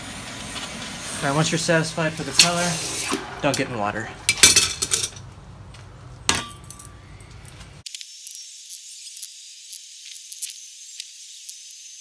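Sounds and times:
metal tongs clank: 4.3 - 5.2, 6.3 - 7.0.

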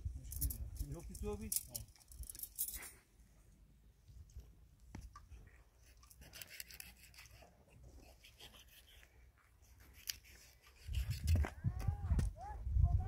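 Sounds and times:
light clicks and scrapes: 4.3 - 11.6.

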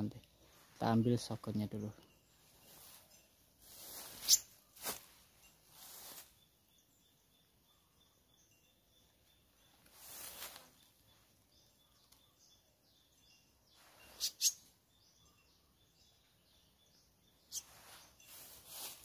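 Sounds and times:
leaves and twigs rustling: 0.0 - 6.5, 9.6 - 12.3, 17.5 - 19.0
faint bird chirping: 0.0 - 19.0.

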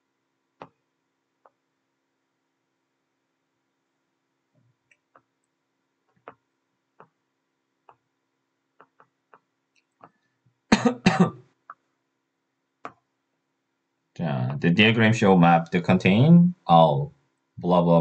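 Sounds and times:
faint clicks: 8.8 - 10.3
person coughing: 10.7 - 11.4.

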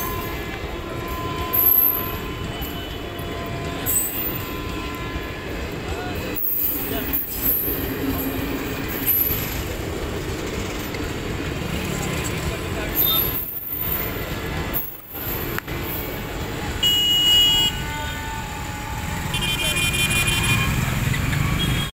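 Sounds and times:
train wheels rumbling on rails: 0.0 - 16.8
high wheel squeals: 0.0 - 21.9.

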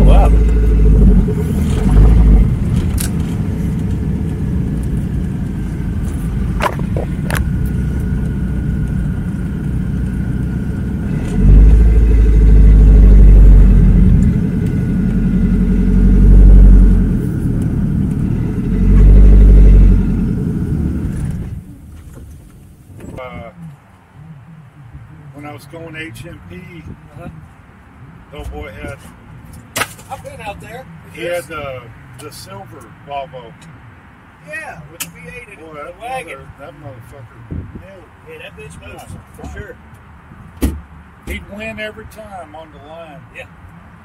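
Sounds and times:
heavy low rumble: 0.0 - 29.4
car engine running: 0.0 - 29.5.

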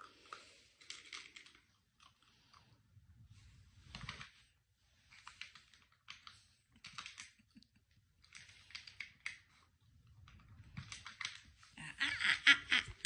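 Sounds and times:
plastic puzzle feeder clicking: 0.3 - 1.7, 5.1 - 7.4, 10.7 - 11.5.

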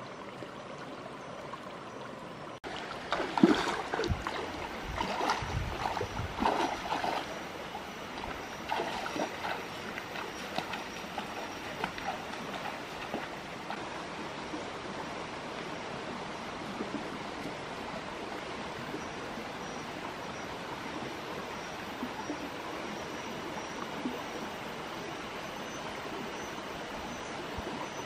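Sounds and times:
stream flowing over stones: 0.0 - 28.0
faint splashes: 2.6 - 13.8.

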